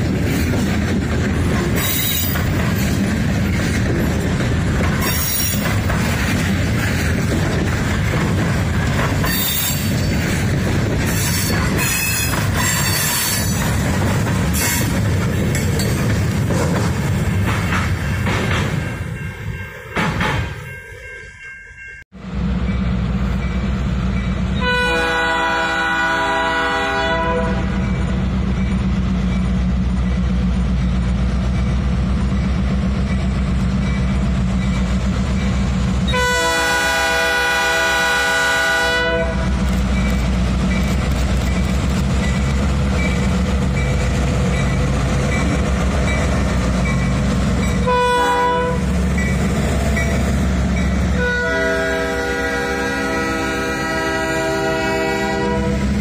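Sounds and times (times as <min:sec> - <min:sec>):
diesel locomotive engines rumbling: 0:00.0 - 0:56.0
train air horn blasts: 0:24.6 - 0:27.8, 0:36.1 - 0:39.5, 0:47.8 - 0:48.9, 0:51.1 - 0:55.9.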